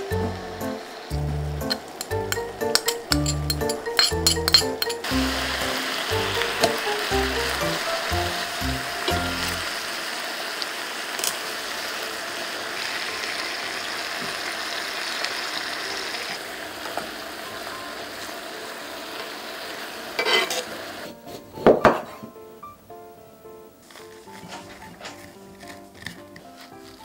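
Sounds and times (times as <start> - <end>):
meat sizzling in a skillet: 0.0 - 21.2
tongs clicking: 1.6 - 5.1.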